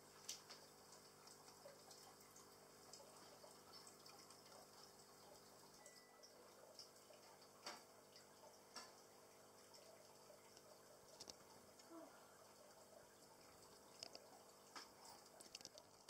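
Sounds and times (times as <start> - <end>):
faint small ticks: 0.1 - 12.7, 13.4 - 16.0
water in plastic case: 13.8 - 16.0.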